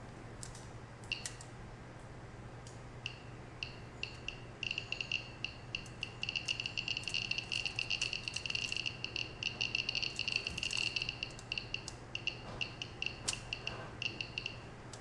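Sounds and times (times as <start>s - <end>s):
geiger counter beeps: 3.1s - 14.7s.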